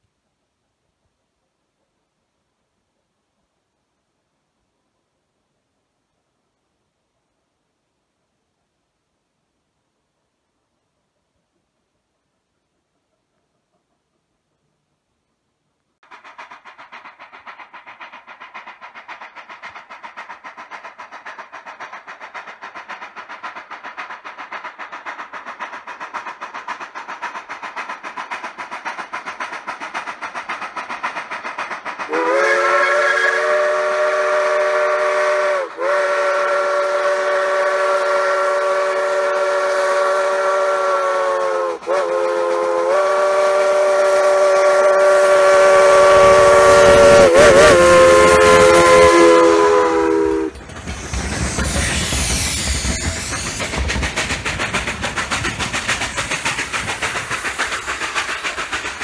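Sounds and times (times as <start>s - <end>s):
steam locomotive exhaust beats: 16.0s - 59.0s
steam locomotive chime whistle: 32.1s - 53.8s.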